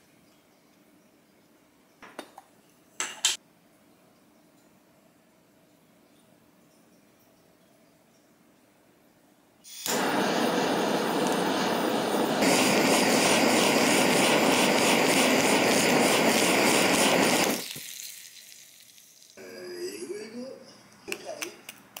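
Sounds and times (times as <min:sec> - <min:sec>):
kitchen appliance motor whirring: 0:09.9 - 0:17.8.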